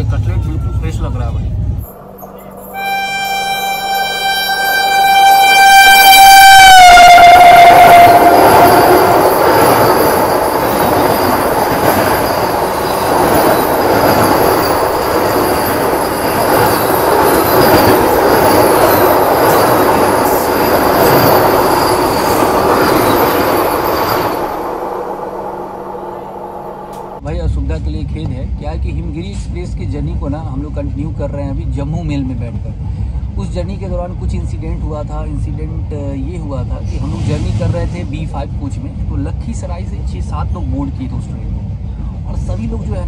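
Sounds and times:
train running past: 0:00.0 - 0:43.0
train horn blast: 0:02.0 - 0:11.6, 0:15.4 - 0:27.2.

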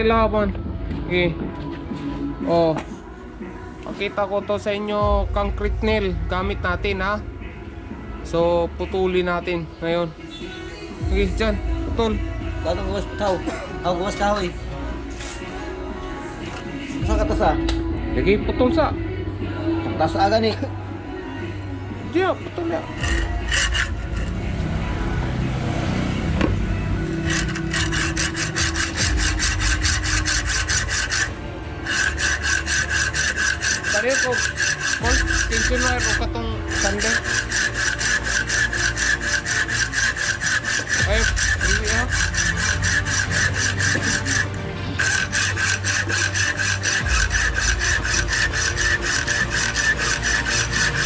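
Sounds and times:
hacksaw cutting steel: 0:23.0 - 0:24.7, 0:27.0 - 0:51.0.

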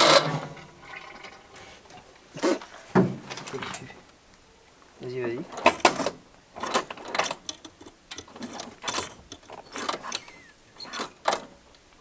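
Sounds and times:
sharp metallic clicks and rattles: 0:05.5 - 0:11.5.

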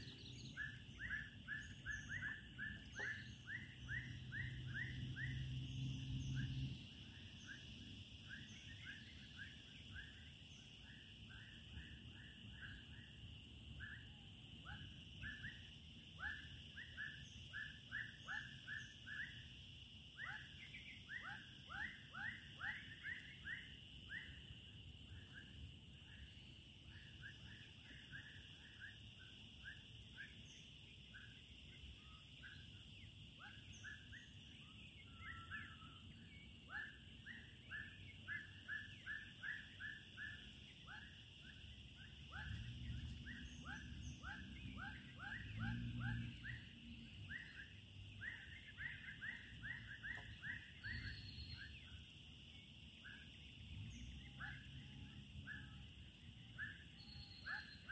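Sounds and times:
high-pitched insect drones: 0:00.0 - 0:57.9.

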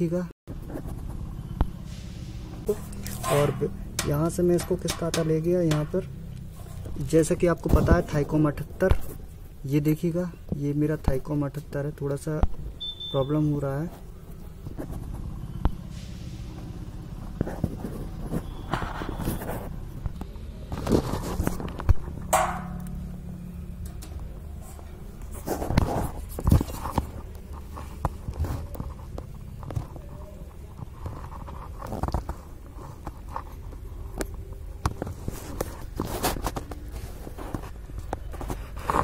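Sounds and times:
hands knocking on metal mount: 0:04.0 - 0:06.0.

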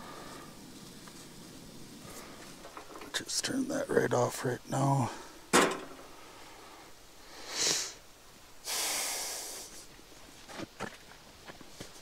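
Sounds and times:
long breathy exhale: 0:06.2 - 0:08.0, 0:08.6 - 0:09.8
person sniffing: 0:07.3 - 0:08.0, 0:08.6 - 0:09.9.

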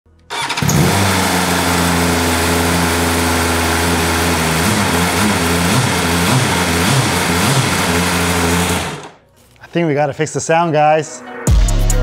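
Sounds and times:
motorcycle engine idling and revving: 0:00.3 - 0:09.2.

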